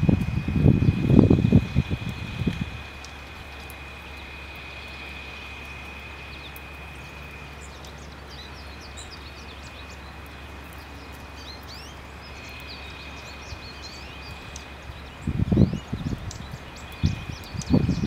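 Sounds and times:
low rumble: 0:00.0 - 0:08.8
small songbirds chirping: 0:00.0 - 0:18.0.

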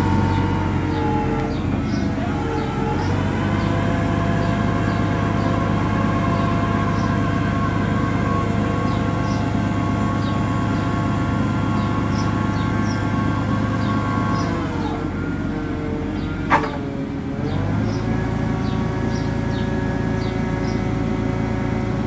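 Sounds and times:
hydraulics whining: 0:00.0 - 0:22.0.

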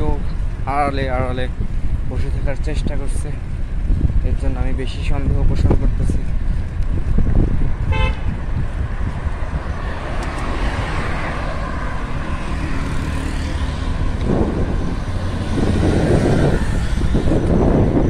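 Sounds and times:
wind rumble on microphone: 0:00.0 - 0:18.0
cars driving past: 0:07.6 - 0:18.0.

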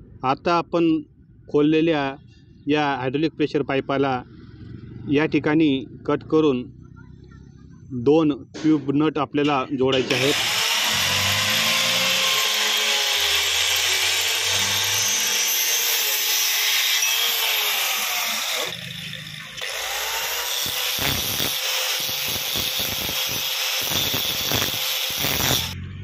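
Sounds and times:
angle grinder cutting metal: 0:09.5 - 0:25.8
grinder scraping strokes: 0:10.0 - 0:25.8.

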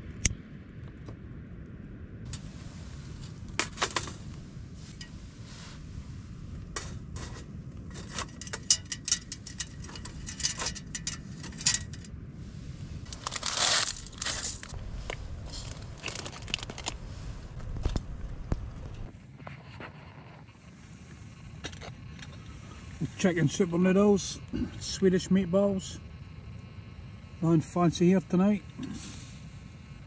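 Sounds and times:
low steady rumble: 0:00.0 - 0:30.0
camping cookware clinking: 0:02.3 - 0:05.3, 0:06.6 - 0:12.1
plastic packets crinkling and tearing: 0:13.1 - 0:14.8, 0:15.4 - 0:18.0.

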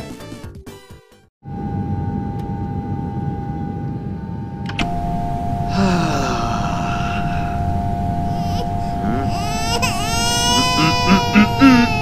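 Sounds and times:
airliner engine rumble: 0:01.5 - 0:12.0
constant whine: 0:01.5 - 0:12.0.

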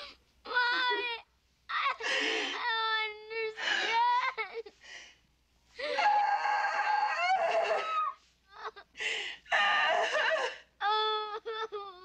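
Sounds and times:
girl screaming and crying: 0:05.8 - 0:08.8, 0:09.5 - 0:12.0.

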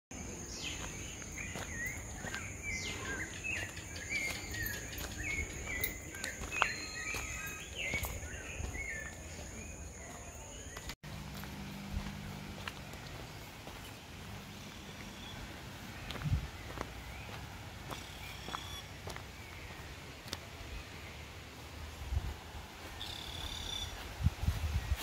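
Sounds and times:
birds calling: 0:00.1 - 0:21.6, 0:22.9 - 0:24.1.

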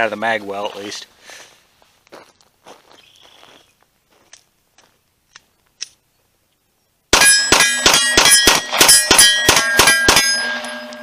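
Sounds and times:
pistol rapid fire: 0:07.1 - 0:10.6
bullets ringing off steel targets: 0:07.2 - 0:11.0.

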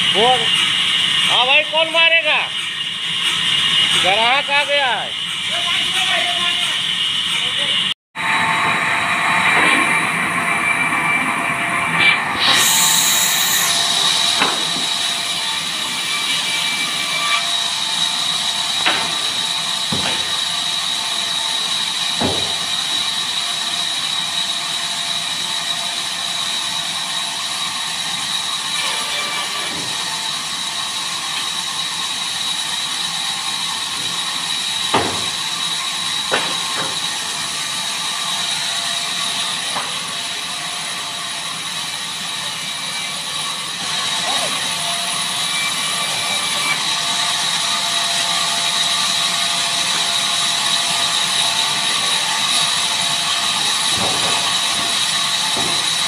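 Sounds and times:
sharp knocks: 0:19.9 - 0:20.4, 0:22.2 - 0:22.6, 0:34.9 - 0:35.4, 0:36.3 - 0:37.0.

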